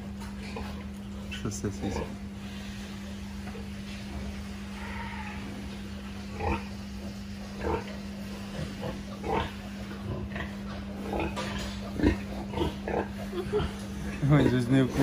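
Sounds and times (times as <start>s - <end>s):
steady low hum: 0.0s - 15.0s
piglet squealing and grunting: 4.7s - 6.7s.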